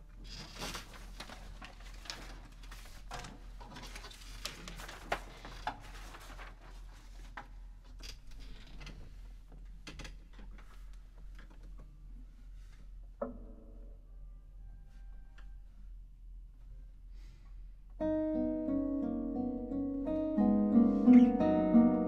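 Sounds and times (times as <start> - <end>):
sheet music pages rustling: 0.2 - 7.9.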